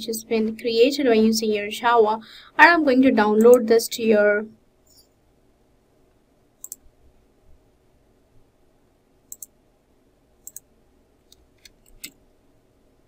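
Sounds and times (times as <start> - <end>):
low room hum: 0.0 - 13.0
computer mouse clicks: 6.6 - 6.9, 9.3 - 9.6, 10.4 - 10.7, 11.3 - 12.2.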